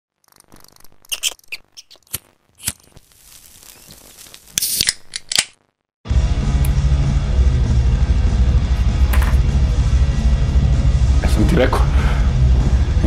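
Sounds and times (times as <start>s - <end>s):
glitchy clicks and tearing noises: 0.1s - 5.8s.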